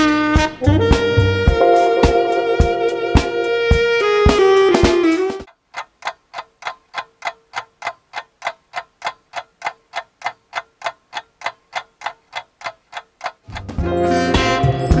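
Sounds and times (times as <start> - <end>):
clock ticking: 5.4 - 15.0.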